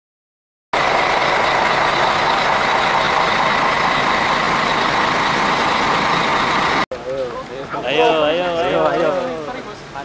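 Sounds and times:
bus engine idling: 0:00.8 - 0:10.0.

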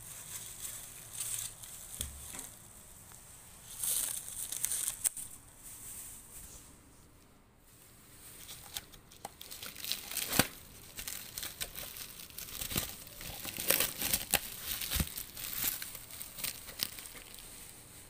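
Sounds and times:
plastic wrap crinkling: 0:00.0 - 0:02.8, 0:03.6 - 0:05.4, 0:08.2 - 0:18.0.

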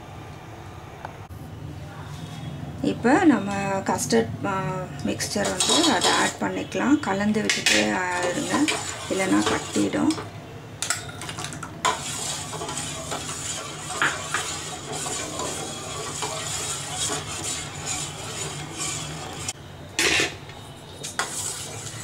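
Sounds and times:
metal spoon scraping a saucepan: 0:05.2 - 0:06.8, 0:07.4 - 0:10.3, 0:11.4 - 0:20.4, 0:21.0 - 0:22.0.

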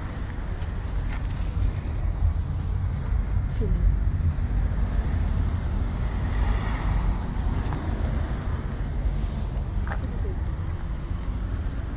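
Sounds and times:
steady low traffic rumble: 0:00.0 - 0:11.9
vehicle passing by: 0:01.1 - 0:11.9.

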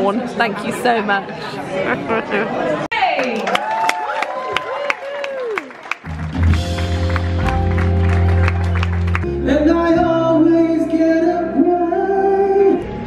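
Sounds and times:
live band playing chords: 0:05.9 - 0:13.0
man singing long notes: 0:09.3 - 0:13.0.

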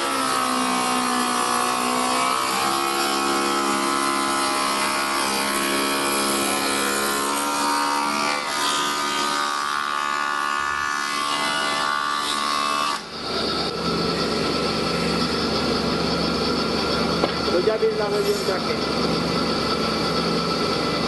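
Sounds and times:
cutter rasping into wood: 0:00.0 - 0:09.6
machine whine: 0:00.0 - 0:21.0.

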